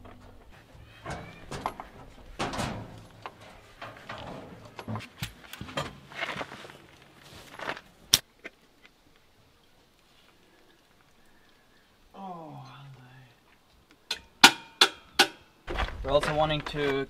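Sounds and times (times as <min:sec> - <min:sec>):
knocks and rustling: 0:00.0 - 0:07.8.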